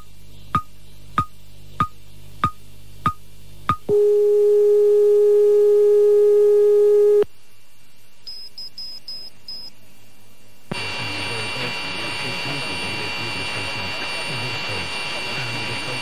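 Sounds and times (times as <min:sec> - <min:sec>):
noisy hum: 0:00.0 - 0:16.0
loud steady radio tone: 0:10.7 - 0:16.0
radio hiss: 0:10.7 - 0:16.0.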